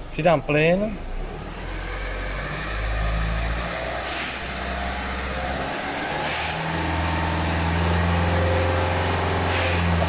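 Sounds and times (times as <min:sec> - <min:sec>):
diesel engine revving: 0:01.0 - 0:10.0
brief hisses: 0:04.1 - 0:04.5.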